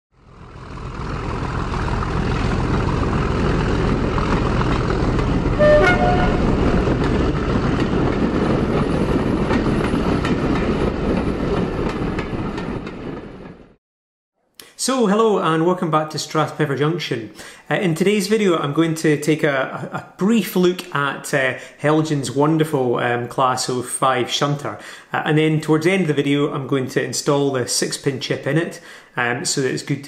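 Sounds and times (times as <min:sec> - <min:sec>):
diesel locomotive rumbling: 0:00.2 - 0:13.8
two-note train horn: 0:05.5 - 0:07.1.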